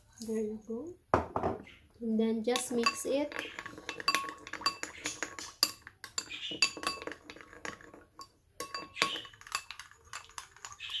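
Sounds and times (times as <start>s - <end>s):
spoon clinking in glass bowl: 2.6s - 11.0s.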